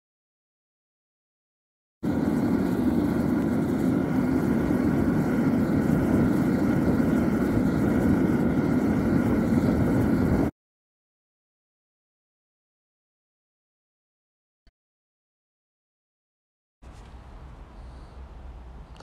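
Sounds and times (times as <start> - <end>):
furnace burner roaring: 2.0 - 10.5.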